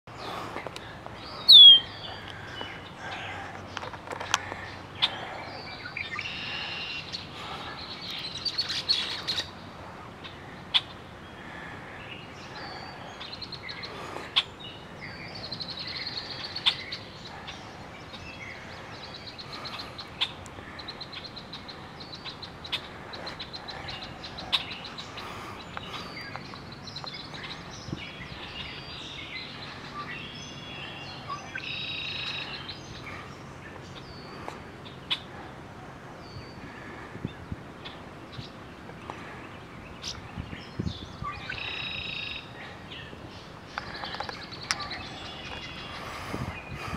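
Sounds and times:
songbirds chirping: 0.1s - 46.9s
fast bird trill: 1.4s - 2.0s
loud down-slurred bird whistle: 1.5s - 1.9s.

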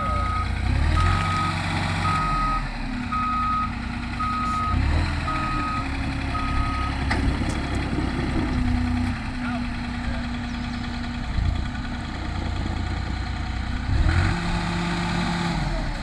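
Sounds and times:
forklift engine running: 0.0s - 16.0s
reversing alarm beeps: 0.2s - 7.0s.

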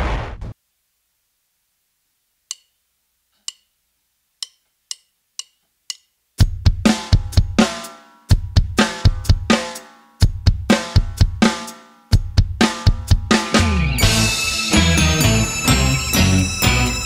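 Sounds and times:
sharp count-in clicks: 2.5s - 2.8s, 3.4s - 3.7s, 4.4s - 6.2s
festive pop band playing: 13.4s - 17.0s.

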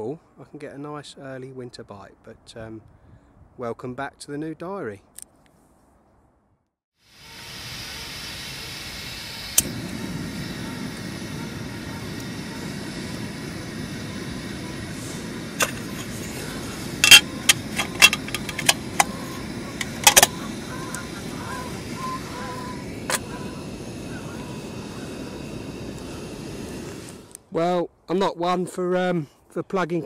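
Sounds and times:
gas hissing from burner: 7.1s - 27.4s
burning flame rush: 7.4s - 27.4s
stove igniter clicks: 9.5s - 9.8s, 15.5s - 16.1s, 17.0s - 21.2s.

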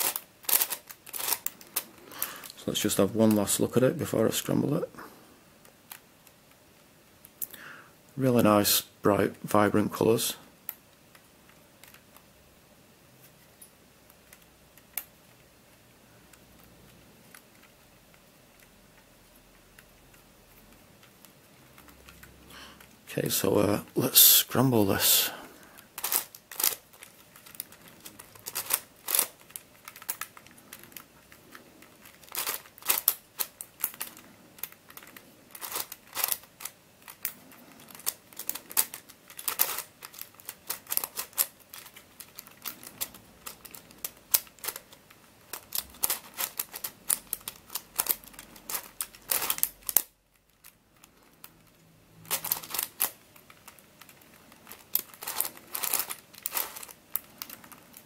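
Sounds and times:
plastic puzzle pieces clicking: 0.0s - 2.6s, 16.3s - 23.0s, 25.8s - 58.0s.

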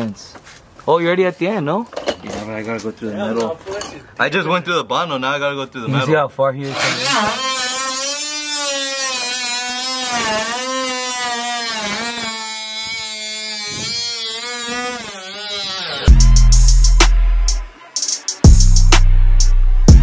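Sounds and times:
cut-off wheel whining through metal: 6.7s - 16.1s.

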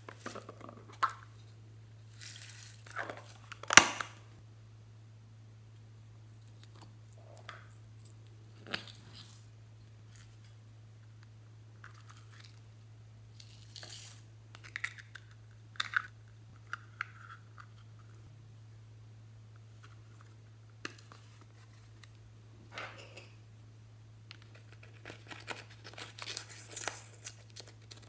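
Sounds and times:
low hum: 4.2s - 28.0s.

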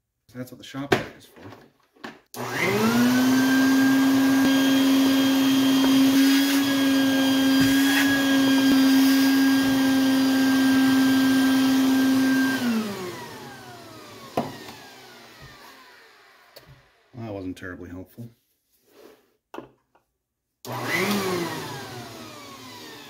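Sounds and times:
vacuum motor winding down: 2.4s - 17.1s, 20.7s - 23.0s
shop vac running: 2.4s - 17.4s, 20.6s - 23.0s.

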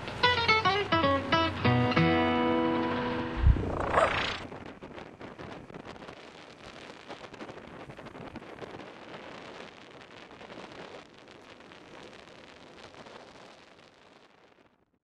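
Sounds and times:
wind buffeting microphone: 3.3s - 9.5s.

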